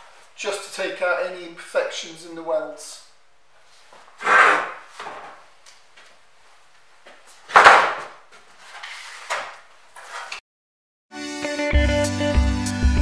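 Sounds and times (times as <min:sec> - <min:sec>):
short rasping noises: 0:04.2 - 0:04.8.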